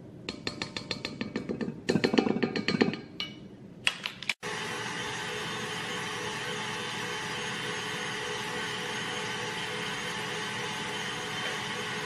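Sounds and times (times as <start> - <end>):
electric mixer whipping: 4.4 - 12.0.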